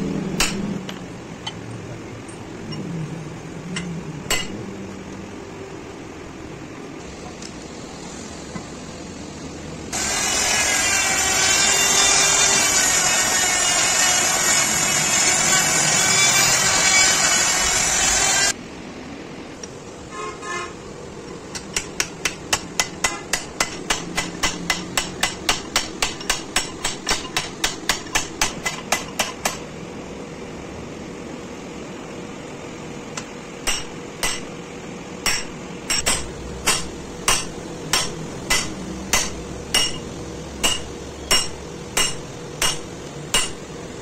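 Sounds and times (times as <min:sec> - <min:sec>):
loud whirring: 0:09.9 - 0:18.6.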